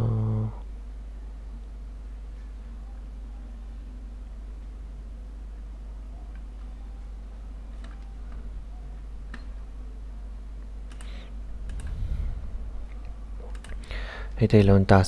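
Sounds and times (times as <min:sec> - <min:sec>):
steady low hum: 0:00.0 - 0:15.0
computer mouse clicking: 0:07.8 - 0:08.4, 0:10.9 - 0:12.0, 0:12.9 - 0:13.9.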